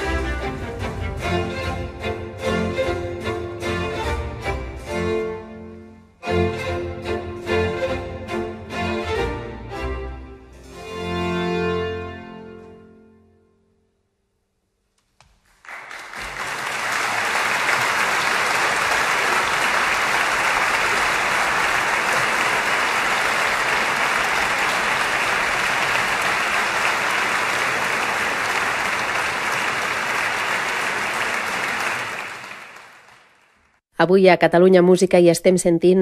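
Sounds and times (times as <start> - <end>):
audience applause: 15.5 - 33.8.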